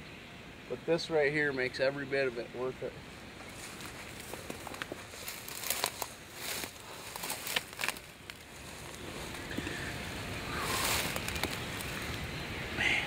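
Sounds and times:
dry grass and brush rustling: 1.8s - 12.8s
small snaps and crinkles: 3.7s - 9.7s, 10.6s - 12.2s.

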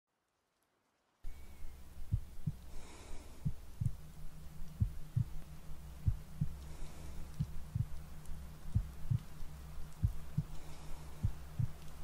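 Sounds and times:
steady low hum: 1.2s - 12.0s
heartbeat thumps: 2.1s - 2.7s, 3.4s - 4.0s, 4.7s - 5.4s, 6.0s - 6.6s, 7.3s - 8.0s, 8.7s - 9.3s, 10.0s - 10.6s, 11.2s - 11.9s.

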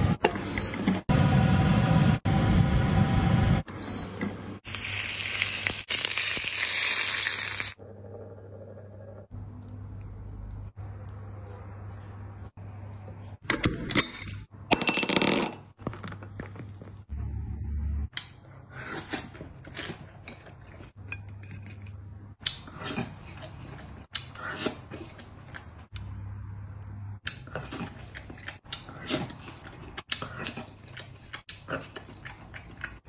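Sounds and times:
eating sounds: 27.2s - 33.0s.

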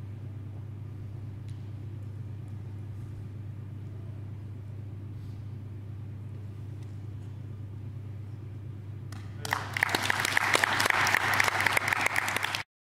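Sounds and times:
low hum: 0.0s - 9.8s
audience applause: 9.4s - 12.7s.

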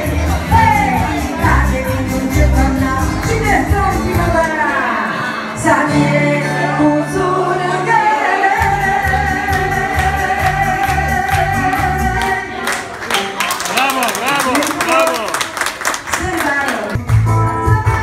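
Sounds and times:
instrumental backing with bass: 0.0s - 4.6s, 5.4s - 12.6s, 17.0s - 18.0s
woman singing: 0.0s - 12.8s.

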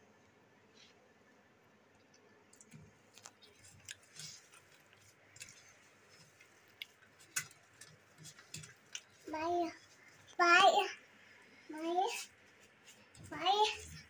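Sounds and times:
potato squelching: 2.5s - 10.9s.

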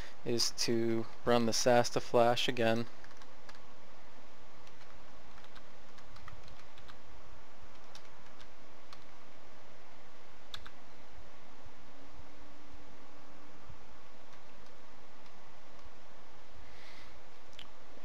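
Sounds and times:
background hiss: 0.0s - 18.0s
keyboard typing: 2.9s - 3.6s, 4.6s - 7.0s, 7.7s - 9.1s, 10.5s - 10.8s.

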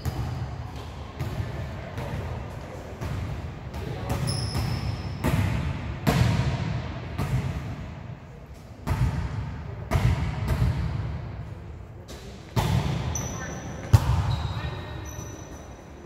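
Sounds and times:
volleyball thuds echoing: 4.0s - 7.6s.

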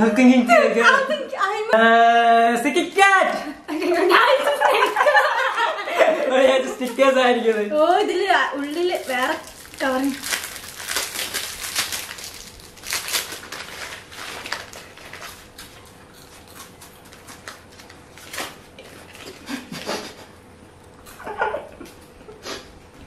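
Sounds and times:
foil wrappers tearing and crinkling: 8.6s - 19.5s
person humming or laughing: 19.3s - 20.4s.

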